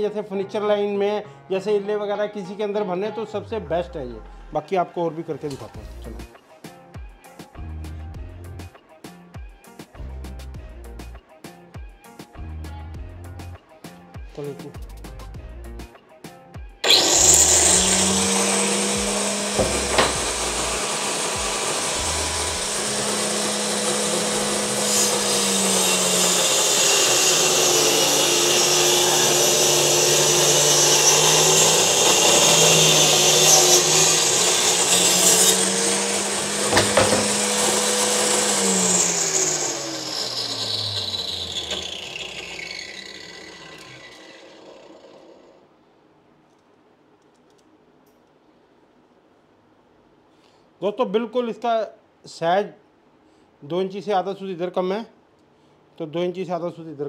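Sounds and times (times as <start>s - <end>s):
circular saw cutting wood: 16.8s - 45.6s.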